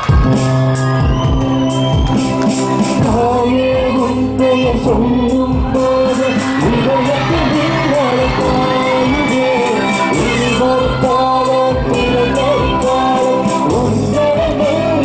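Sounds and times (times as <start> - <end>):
bass guitar: 0.0 - 15.0
steady drum beat: 0.0 - 15.0
singers holding long notes: 2.6 - 15.0.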